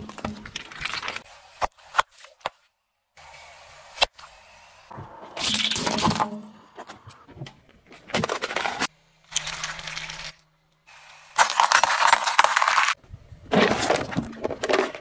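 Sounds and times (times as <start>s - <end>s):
objects crunching under car tyre: 11.3s - 15.0s.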